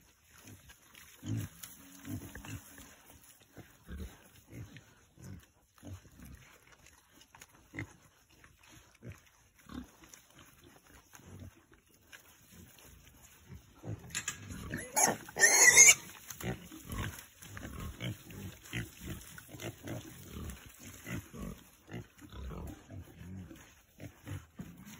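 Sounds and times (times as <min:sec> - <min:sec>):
pigs grunting: 0:00.3 - 0:24.9
pig squealing: 0:14.7 - 0:16.1.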